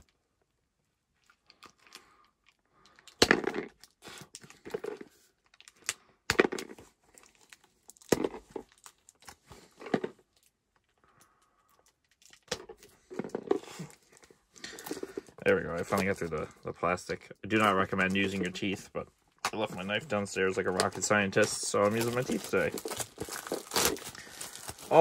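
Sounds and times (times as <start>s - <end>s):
plastic wrap torn with teeth: 21.8s - 25.0s.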